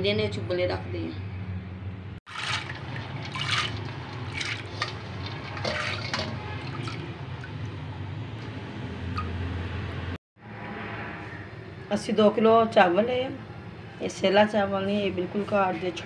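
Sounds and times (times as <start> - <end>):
lentils splashing into water: 2.3 - 7.6
hand scraping steel bowl: 2.4 - 7.0.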